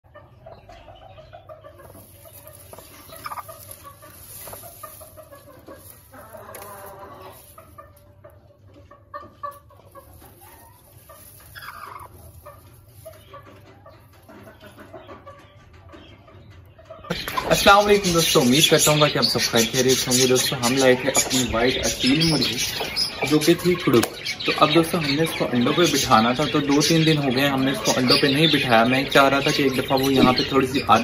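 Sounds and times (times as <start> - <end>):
hen clucking: 0.0 - 31.0.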